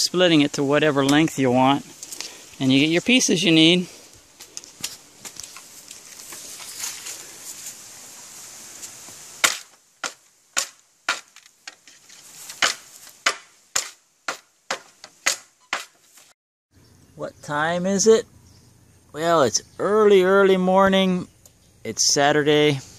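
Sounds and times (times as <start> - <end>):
steady hiss: 0.0 - 16.3, 17.6 - 22.9
bamboo pole cracking: 4.4 - 7.2, 8.8 - 16.3.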